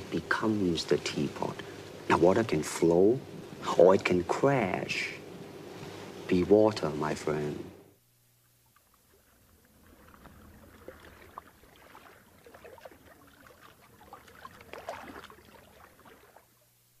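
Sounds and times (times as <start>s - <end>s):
water lapping and trickling: 8.3s - 16.9s
small splashes: 8.4s - 16.7s.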